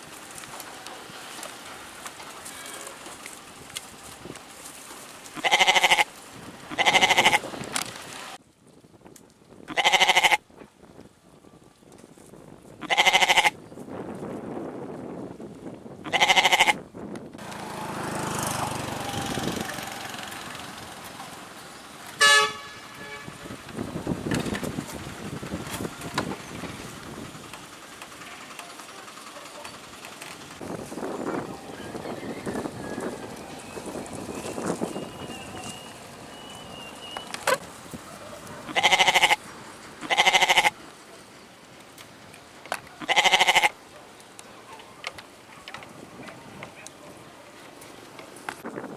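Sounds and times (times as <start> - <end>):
goats bleating: 5.4 - 6.1, 6.7 - 7.4, 9.7 - 10.4, 12.8 - 13.6, 16.1 - 16.8, 38.7 - 39.4, 40.0 - 40.8, 43.0 - 43.8
steady background noise: 16.1 - 48.9.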